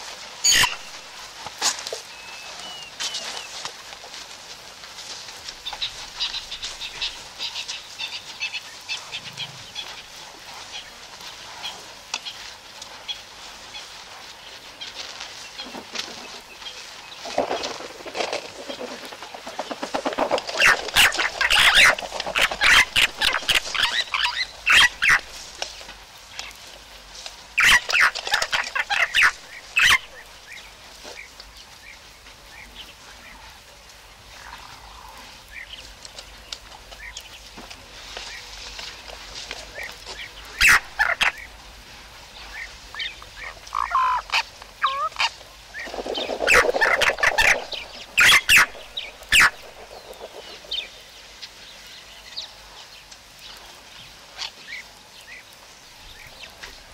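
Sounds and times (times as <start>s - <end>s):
bird rattling cackles: 0.4s - 0.8s, 18.5s - 25.3s, 27.6s - 30.2s, 40.6s - 41.5s, 43.4s - 51.0s.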